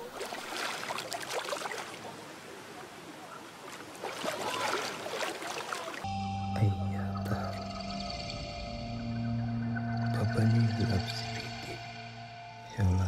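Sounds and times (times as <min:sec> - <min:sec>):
water lapping and splashing: 0:00.0 - 0:06.1.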